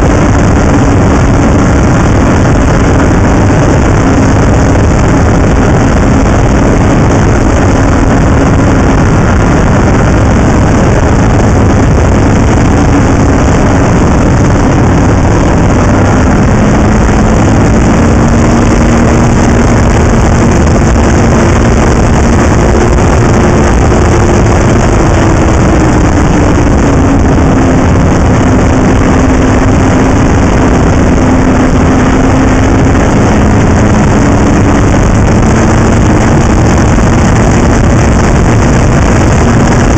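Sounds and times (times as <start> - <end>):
snowmobile engine and track noise: 0.0 - 39.9.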